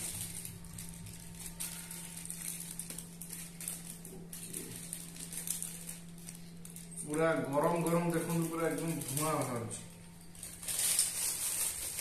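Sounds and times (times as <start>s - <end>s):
foil crinkling and rustling: 0.0s - 12.0s.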